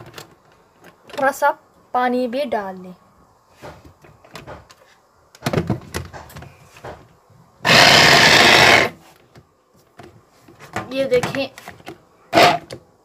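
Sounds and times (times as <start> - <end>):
electric chopper grinding: 7.6 - 9.0.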